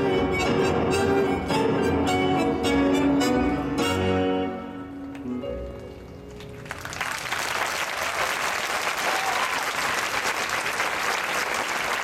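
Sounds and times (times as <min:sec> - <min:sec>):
tango music: 0:00.0 - 0:06.6
audience applause: 0:06.6 - 0:12.0.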